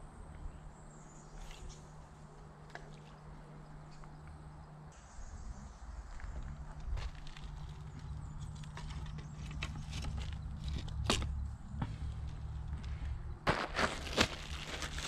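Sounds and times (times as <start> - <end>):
footsteps scuffing over rocks: 6.2 - 15.0.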